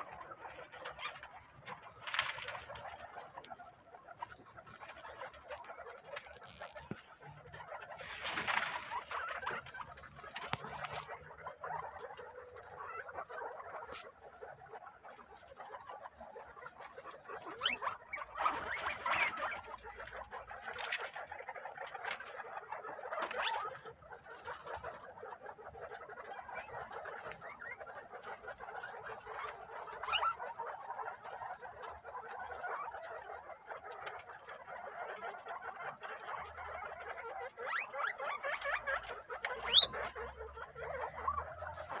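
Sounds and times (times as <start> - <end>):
guinea pigs squeaking: 0.0 - 42.0
rustling of husks: 0.0 - 42.0.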